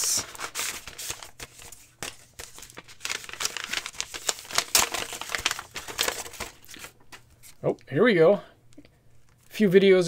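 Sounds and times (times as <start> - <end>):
paper wrapping crinkling: 0.0 - 7.6.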